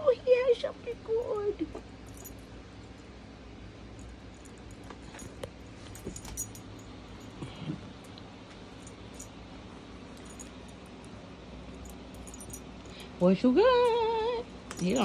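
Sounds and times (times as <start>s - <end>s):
low steady hum: 0.0s - 15.0s
faint metallic jingling: 0.8s - 3.0s, 3.9s - 7.5s, 10.1s - 11.0s, 11.6s - 15.0s.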